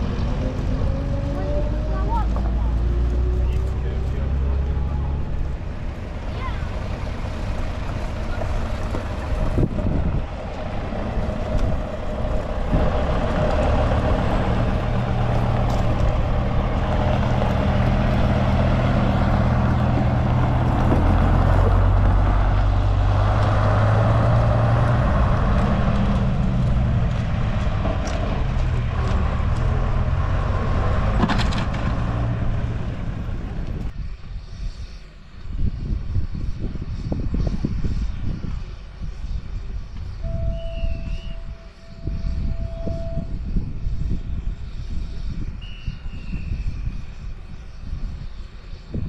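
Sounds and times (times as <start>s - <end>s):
bus engine running: 0.0s - 34.0s.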